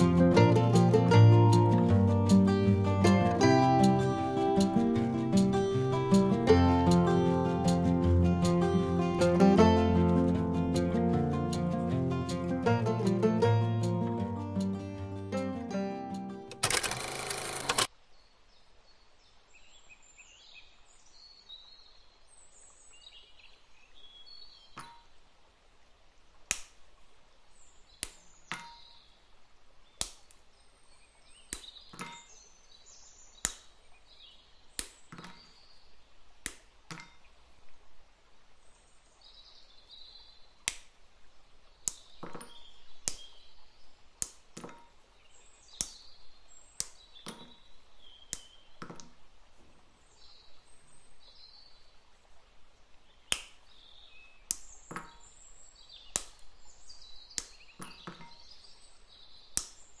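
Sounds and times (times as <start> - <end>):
birds chirping faintly: 27.3 - 60.0.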